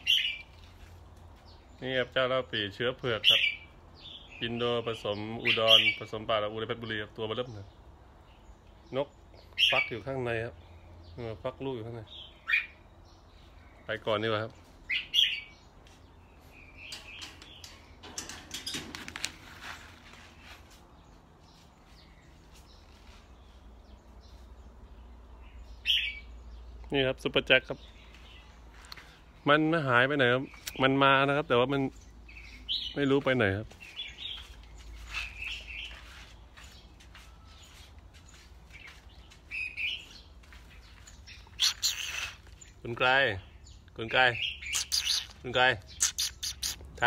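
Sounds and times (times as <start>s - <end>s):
crackling handling noises: 16.8s - 20.9s
faint bird chirp: 19.4s - 47.0s.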